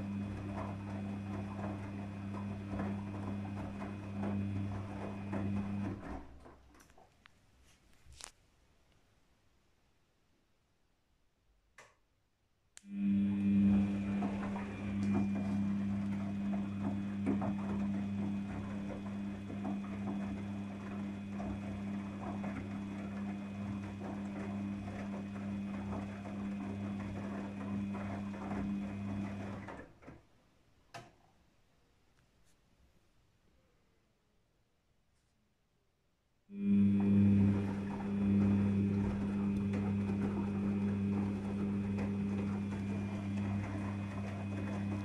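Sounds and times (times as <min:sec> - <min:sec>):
washing machine humming and rattling: 0:00.0 - 0:07.2, 0:12.9 - 0:30.4, 0:36.5 - 0:45.0.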